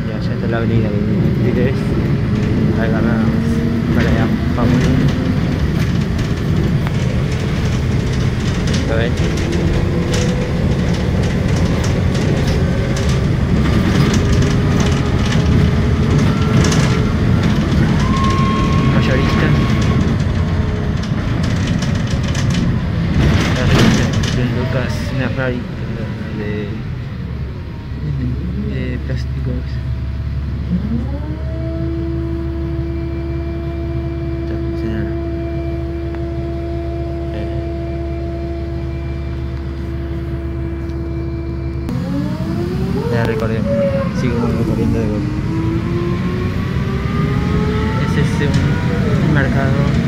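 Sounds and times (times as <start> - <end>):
bus engine and road rumble: 0.0 - 50.0
steady whine: 32.7 - 50.0.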